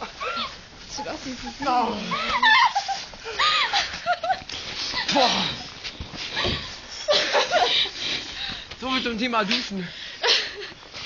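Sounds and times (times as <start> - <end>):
young people laughing and squealing: 0.0 - 8.3.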